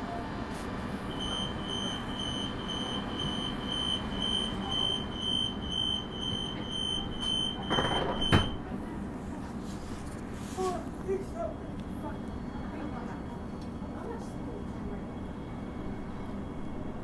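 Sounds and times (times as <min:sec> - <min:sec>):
train door warning beeps: 0:01.0 - 0:08.7
doors shutting with a thud: 0:07.5 - 0:08.7.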